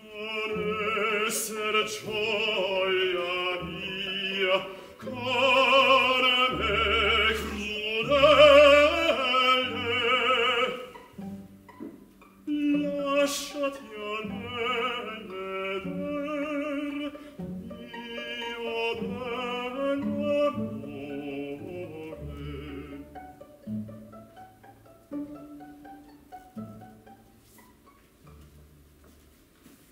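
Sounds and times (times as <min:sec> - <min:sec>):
male opera singer with vibrato: 0:00.0 - 0:11.1, 0:12.4 - 0:23.4
chamber orchestra strings: 0:00.0 - 0:29.3
plucked string notes: 0:19.1 - 0:29.1.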